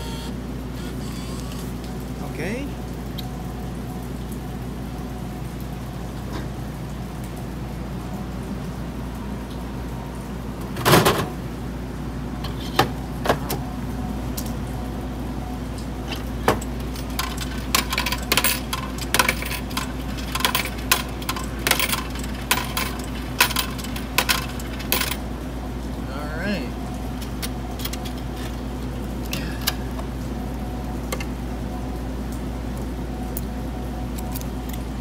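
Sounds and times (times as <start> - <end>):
coins clinking in metal cup: 16.6 - 25.2.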